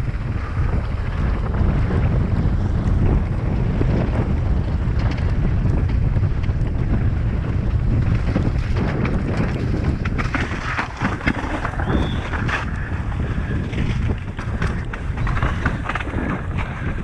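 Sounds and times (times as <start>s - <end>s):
tyres rumbling on rock: 0.0s - 17.0s
wind over microphone: 0.0s - 17.0s
bike clattering over rocks: 7.9s - 17.0s.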